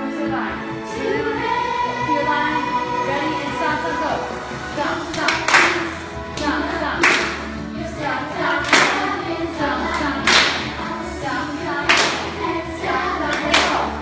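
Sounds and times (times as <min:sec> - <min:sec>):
group singing music: 0:00.0 - 0:14.0
sharp clap-like beat: 0:05.1 - 0:07.5, 0:08.6 - 0:09.2, 0:09.9 - 0:10.8, 0:11.8 - 0:12.4, 0:13.3 - 0:13.9.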